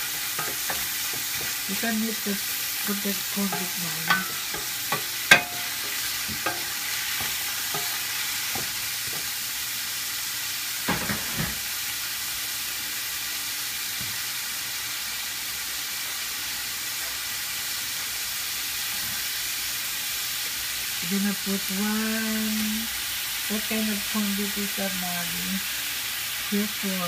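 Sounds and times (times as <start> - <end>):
wooden spatula scraping a pan: 0.0 - 1.9, 2.5 - 9.3
vegetables sizzling in a pan: 0.0 - 27.0.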